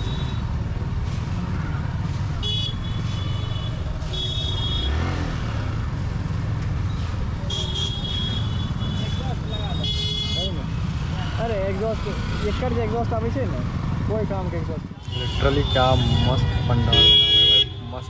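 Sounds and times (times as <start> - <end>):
road and wind rumble: 0.0 - 18.0
vehicle horns honking: 2.4 - 5.2, 7.5 - 10.6, 15.0 - 18.0.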